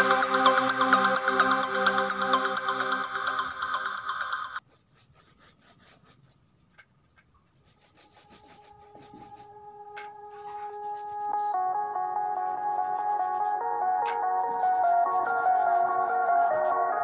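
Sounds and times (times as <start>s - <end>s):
electronic music: 0.0s - 4.6s, 9.9s - 17.0s
held music tones: 0.0s - 4.6s, 8.8s - 17.0s
brush scrubbing paint on canvas: 4.6s - 17.0s.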